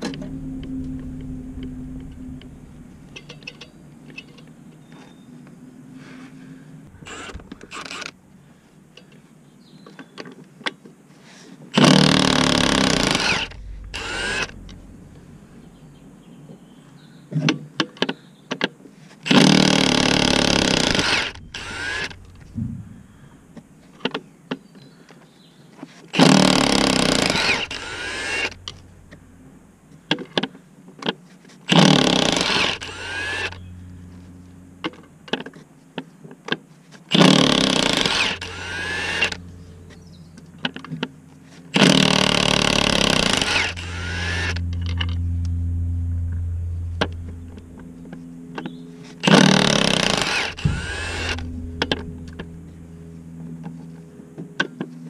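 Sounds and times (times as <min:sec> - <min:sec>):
steady low hum: 0:00.0 - 0:09.7, 0:11.6 - 0:18.4, 0:19.2 - 0:31.0, 0:31.6 - 0:55.0
impact wrench bursts: 0:07.0 - 0:08.2, 0:11.8 - 0:14.6, 0:19.3 - 0:23.4, 0:26.2 - 0:29.2, 0:31.7 - 0:33.7, 0:37.1 - 0:39.4, 0:41.7 - 0:45.1, 0:48.6 - 0:52.5.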